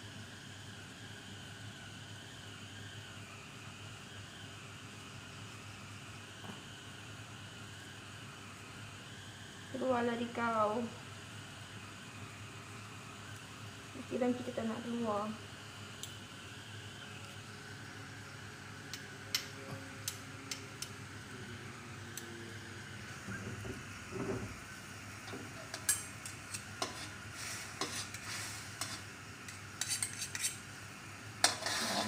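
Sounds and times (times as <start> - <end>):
metal spoon scraping a wok: 25.6 - 30.6, 31.4 - 32.0.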